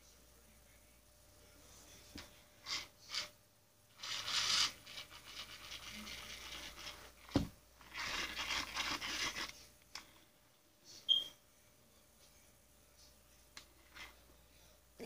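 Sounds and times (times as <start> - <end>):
scratching on fabric: 4.0 - 7.2, 7.8 - 9.7.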